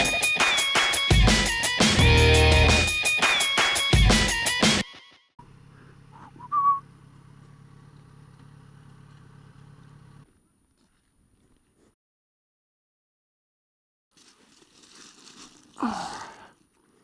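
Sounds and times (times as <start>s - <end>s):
motorcycle engine idling: 5.4s - 10.3s
short rising whistle: 6.2s - 6.8s.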